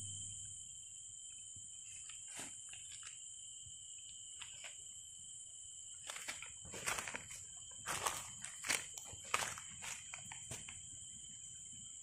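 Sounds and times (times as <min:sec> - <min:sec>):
footsteps in dry leaves: 0:06.1 - 0:10.7.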